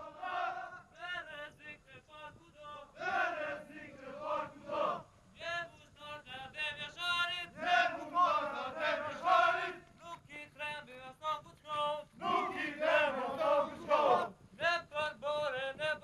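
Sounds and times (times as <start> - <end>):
soldiers chanting in rhythm: 0.0 - 1.6, 2.6 - 5.1, 7.4 - 9.8, 12.2 - 14.3.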